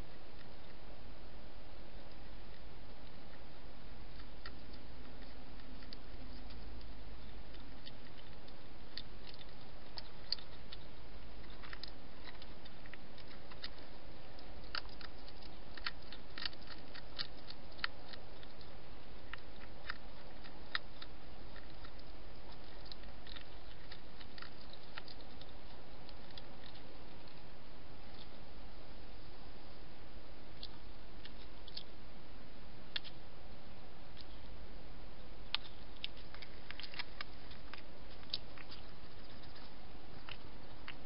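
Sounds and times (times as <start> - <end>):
hedgehog chewing and crunching: 0.0 - 41.0
microphone hiss: 0.0 - 41.0.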